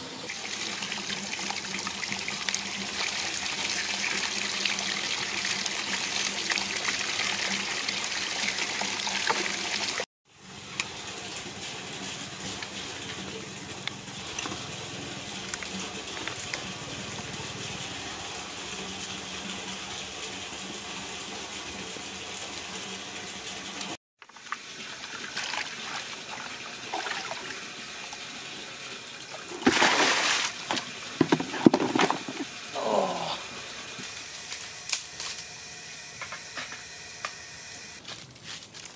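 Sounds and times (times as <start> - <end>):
running water splashing: 0.3 - 10.1, 24.3 - 28.4, 29.2 - 31.4
knocks and scrapes: 30.7 - 32.5.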